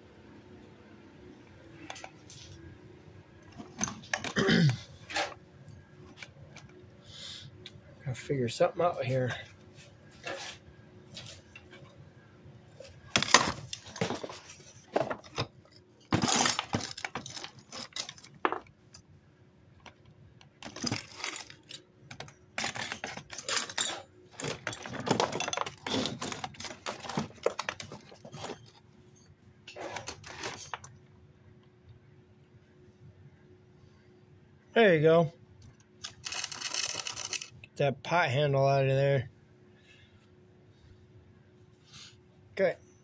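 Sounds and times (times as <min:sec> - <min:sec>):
faint hum: 0:00.0 - 0:43.0
hard objects clattering: 0:03.4 - 0:05.4, 0:12.9 - 0:18.8, 0:19.9 - 0:28.9.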